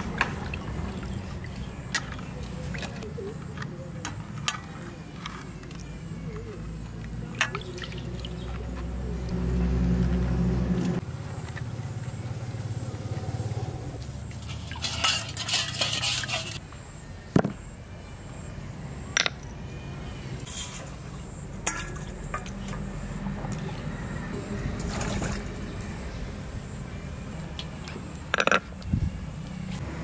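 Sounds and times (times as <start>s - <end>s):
scraping rustle: 14.4s - 16.6s
clay plates and utensils clinking: 14.7s - 16.6s.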